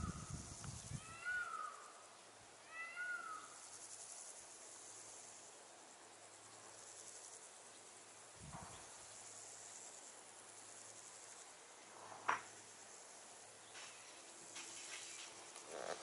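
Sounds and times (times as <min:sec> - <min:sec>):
faint high hiss: 0:00.0 - 0:16.0
bird of prey mewing call: 0:01.0 - 0:01.9, 0:02.7 - 0:03.5.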